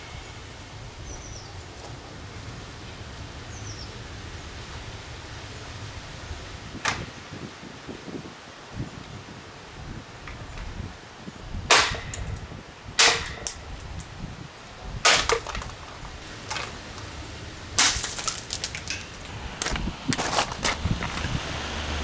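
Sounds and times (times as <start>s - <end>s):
plastic fan being smashed: 11.7s - 14.1s, 15.0s - 17.0s, 17.8s - 21.2s.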